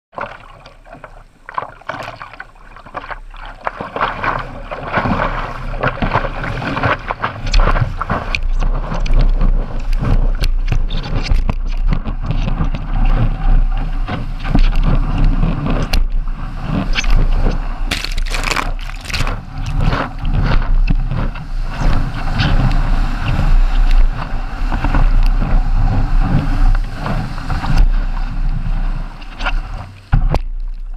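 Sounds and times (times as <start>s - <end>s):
water rushing and splashing: 0.2s - 9.5s, 17.8s - 30.8s.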